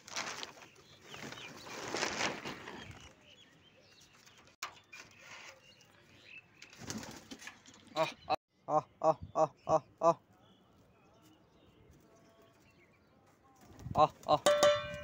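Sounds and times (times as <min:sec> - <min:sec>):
pigeons flapping wings: 0:06.7 - 0:07.5.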